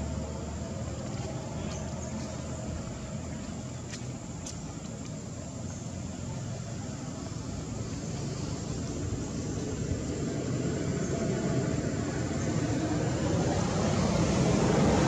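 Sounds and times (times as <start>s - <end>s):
outdoor rumble and hiss: 0.0s - 15.0s.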